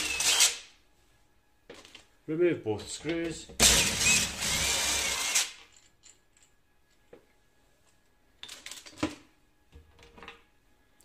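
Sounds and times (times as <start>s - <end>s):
cordless drill running: 0.0s - 0.5s, 3.6s - 5.6s
light metallic clinks and rattles: 5.6s - 7.0s.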